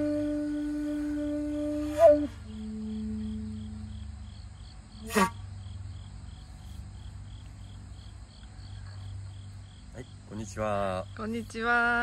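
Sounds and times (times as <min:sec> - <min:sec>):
shakuhachi low note: 0:00.0 - 0:04.1
insects chirping: 0:00.0 - 0:12.0.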